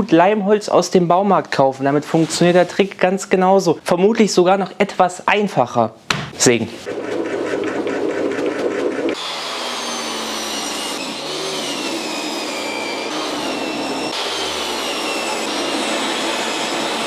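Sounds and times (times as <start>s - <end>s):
table saw ripping boards: 6.9s - 17.0s.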